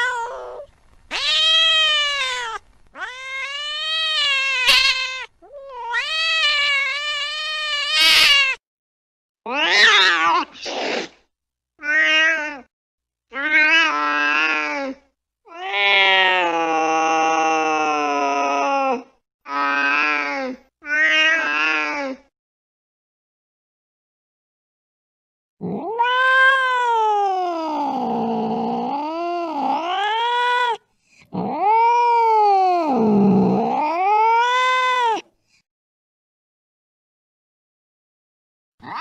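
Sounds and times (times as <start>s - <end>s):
cat meowing: 0.0s - 8.6s, 9.5s - 11.0s, 11.8s - 12.7s, 13.4s - 14.8s, 25.6s - 30.8s, 31.4s - 35.2s.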